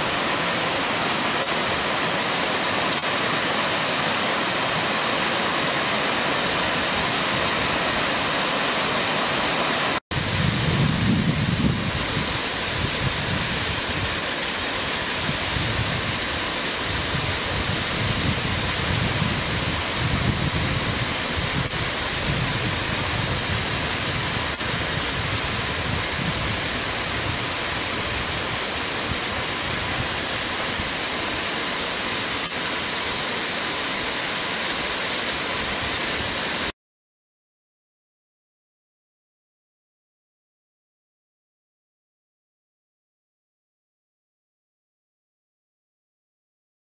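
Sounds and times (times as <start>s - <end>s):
waterfall rushing: 0.0s - 36.7s.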